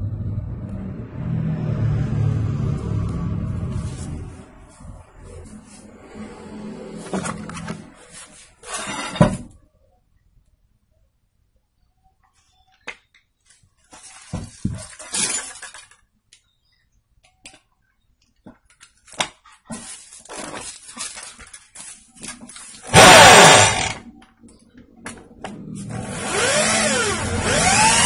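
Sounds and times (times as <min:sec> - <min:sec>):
metal scraping on concrete: 0:02.8 - 0:09.5
electric drill spinning: 0:22.9 - 0:24.0, 0:25.9 - 0:28.0.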